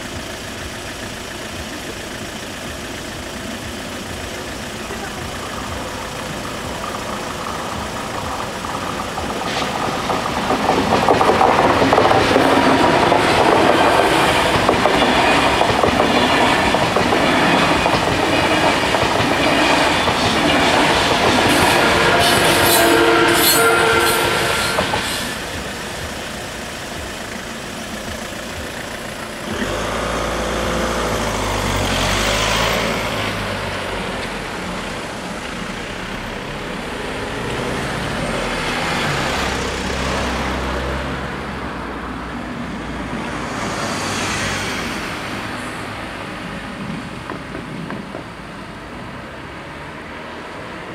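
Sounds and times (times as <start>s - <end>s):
car engine starting and running: 0.0s - 50.9s
train wheels rushing and clattering: 3.8s - 49.6s.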